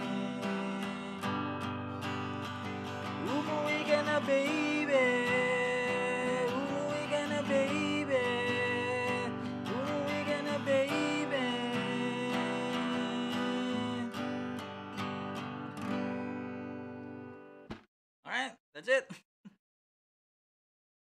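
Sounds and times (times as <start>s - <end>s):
person singing wordlessly: 0.0s - 1.6s, 3.1s - 14.3s
acoustic guitar strumming: 0.0s - 17.7s.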